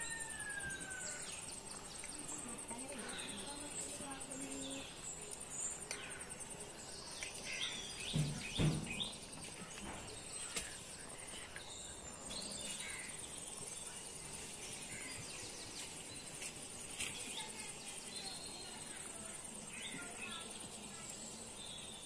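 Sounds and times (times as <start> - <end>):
bird chirps: 0.0 - 19.1
dull knocks: 8.1 - 9.2.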